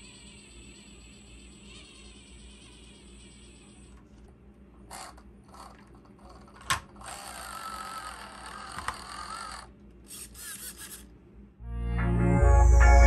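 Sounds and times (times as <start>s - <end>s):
small electric motor whirring: 0.0s - 4.0s, 7.0s - 11.1s.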